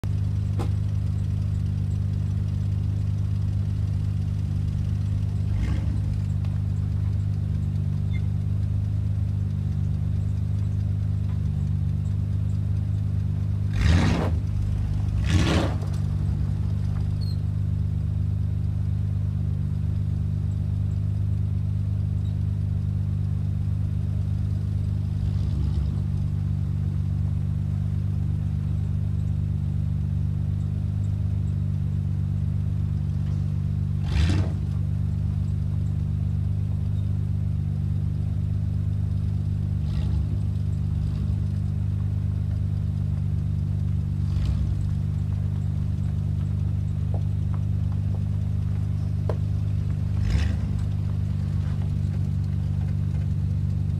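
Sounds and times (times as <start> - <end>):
truck engine rumbling: 0.0 - 53.9.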